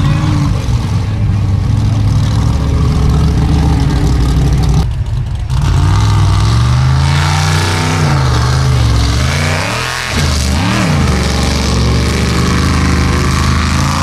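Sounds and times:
engine revving at high revs: 0:05.5 - 0:14.0.

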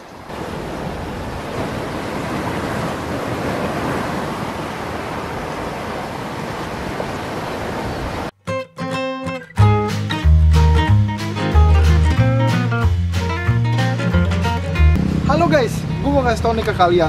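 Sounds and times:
wind buffeting microphone: 0:00.2 - 0:08.3.

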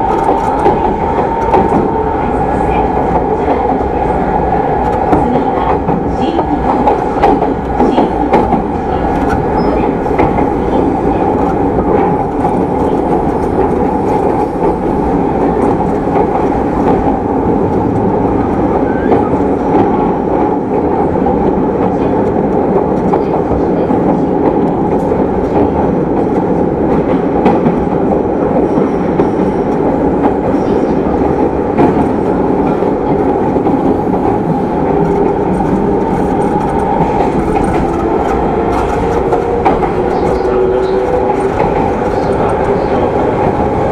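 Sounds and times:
train wheels rumbling on rail: 0:00.0 - 0:43.9.

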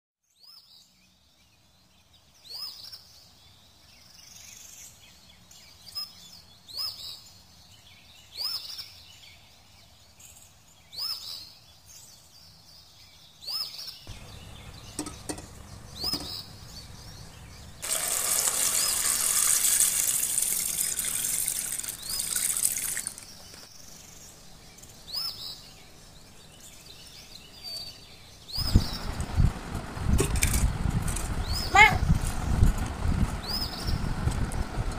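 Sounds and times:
bird chirps: 0:10.3 - 0:29.2
eggs clinking into steel pot: 0:14.9 - 0:16.3
tap water running into pot: 0:14.9 - 0:16.3, 0:17.8 - 0:23.4.

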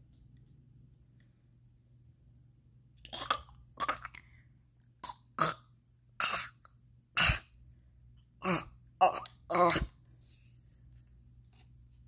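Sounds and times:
person clearing throat: 0:05.0 - 0:06.6, 0:07.2 - 0:07.5, 0:08.4 - 0:10.0
person coughing: 0:07.2 - 0:07.5.

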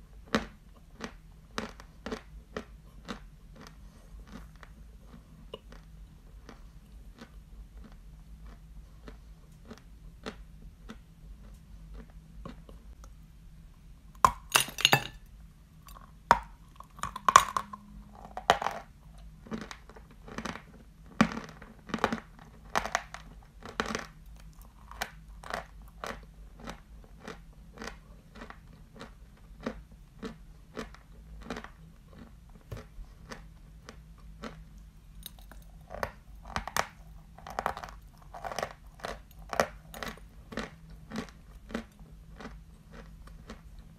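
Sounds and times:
chalk chewing and crunching: 0:00.1 - 0:13.2, 0:15.9 - 0:43.9.

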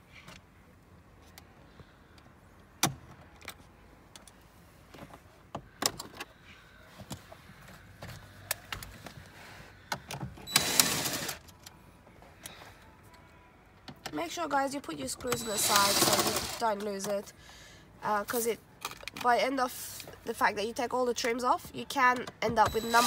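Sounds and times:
cordless drill running: 0:10.5 - 0:11.3, 0:15.3 - 0:16.6, 0:22.7 - 0:23.0.

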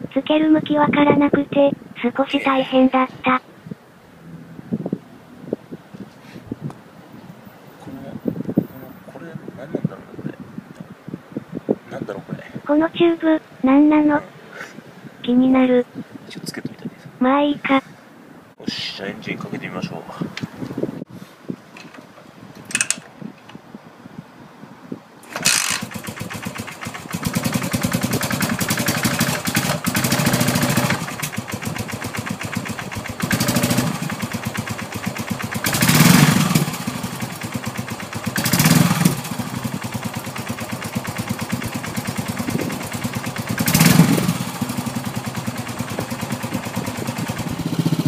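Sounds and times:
motorcycle engine revving: 0:04.1 - 0:05.6, 0:25.3 - 0:48.0
motorcycle engine kick-started: 0:25.2 - 0:48.0
motorcycle engine idling: 0:25.4 - 0:48.0.

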